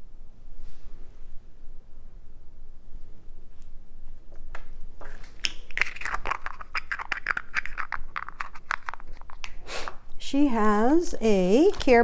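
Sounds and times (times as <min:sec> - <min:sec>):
plastic crackling: 0:05.0 - 0:09.6, 0:10.7 - 0:12.0
small items clicking on tabletop: 0:05.4 - 0:09.6.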